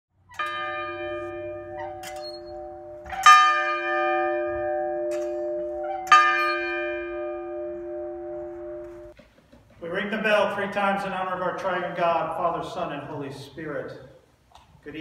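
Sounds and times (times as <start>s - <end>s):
large church bell ringing: 0.3s - 9.2s.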